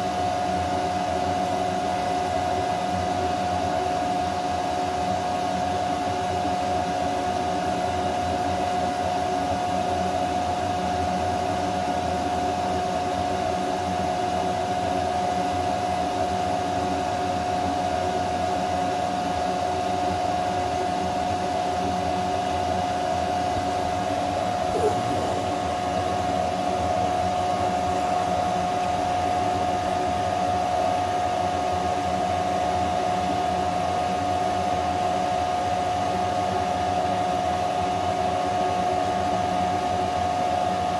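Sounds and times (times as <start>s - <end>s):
cooling fans whirring: 22.4s - 30.3s
steady whine: 24.5s - 27.0s.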